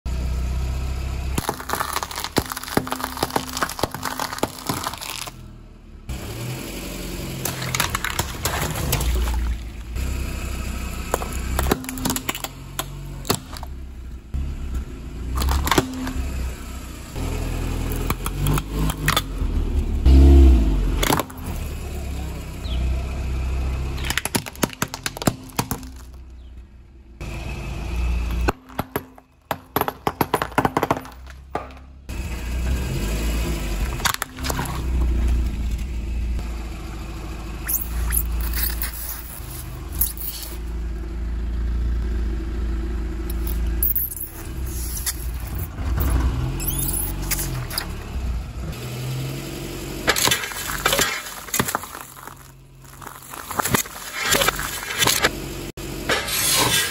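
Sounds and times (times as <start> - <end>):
low car rumble: 0.0 - 56.9
toys crushed under tyre: 1.3 - 5.5, 7.3 - 10.0, 11.1 - 13.8, 15.3 - 16.2, 20.9 - 21.6, 23.9 - 26.5, 28.3 - 32.0, 33.8 - 35.6, 50.0 - 55.4, 56.0 - 56.9.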